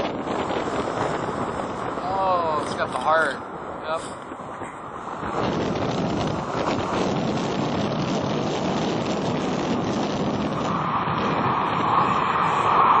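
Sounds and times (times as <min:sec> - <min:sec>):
jet engines running: 0:00.0 - 0:13.0.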